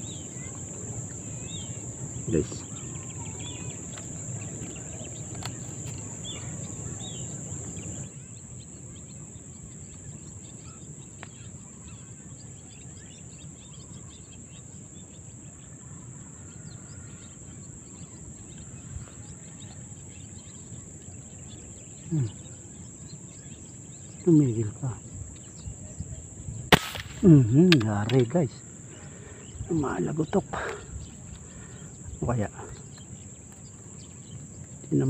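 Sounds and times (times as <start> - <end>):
high-pitched insect buzz: 0.0 - 8.2
faint bird chirps: 0.0 - 35.0
low rustling handling noise: 3.5 - 8.0.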